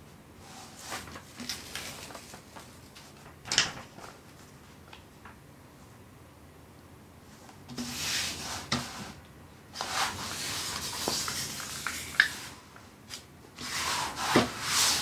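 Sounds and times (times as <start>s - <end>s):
hands rustling plastic sheet: 0.7s - 5.4s, 9.8s - 15.0s.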